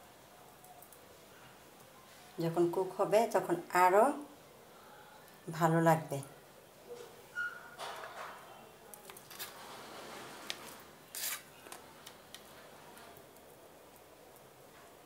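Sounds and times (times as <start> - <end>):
scrape on frying pan: 9.3 - 11.6.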